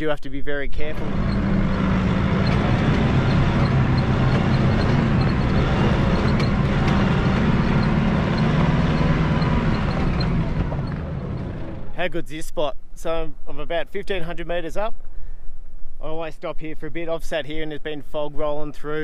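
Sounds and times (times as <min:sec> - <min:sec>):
tyre and road noise: 0:00.8 - 0:12.2
diesel engine running: 0:00.9 - 0:12.1.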